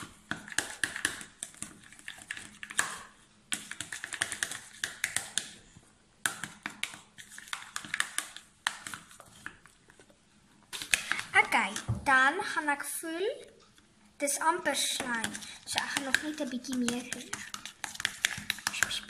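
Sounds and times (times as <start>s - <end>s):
teaspoon tapping plastic tub: 0.3s - 5.6s, 6.2s - 9.0s, 15.0s - 19.0s.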